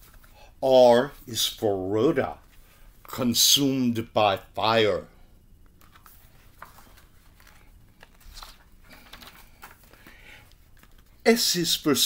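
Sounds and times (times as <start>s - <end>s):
book pages rustling: 5.6s - 11.2s.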